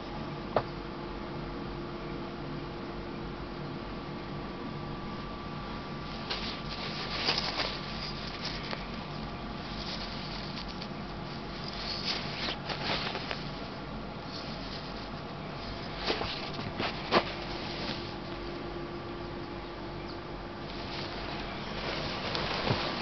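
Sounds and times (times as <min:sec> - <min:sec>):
steady background hum: 0:00.0 - 0:23.0
cloth rustling and handling clicks: 0:06.0 - 0:18.6, 0:20.6 - 0:23.0.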